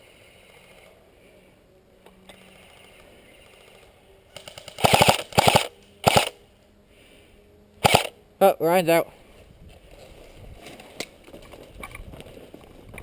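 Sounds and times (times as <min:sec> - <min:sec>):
airsoft gun firing bursts: 0:03.6 - 0:06.4, 0:07.8 - 0:08.2.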